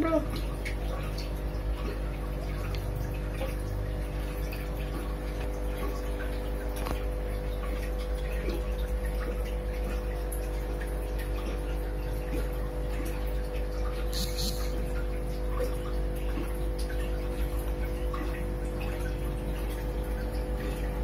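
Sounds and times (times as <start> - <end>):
faint water drips: 0.0 - 21.0
filter pump humming: 0.0 - 21.0
water trickling: 0.0 - 21.0.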